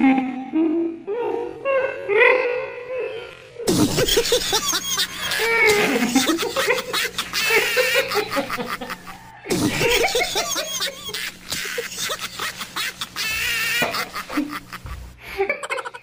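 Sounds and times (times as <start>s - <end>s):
man laughing and snickering: 3.7s - 16.0s.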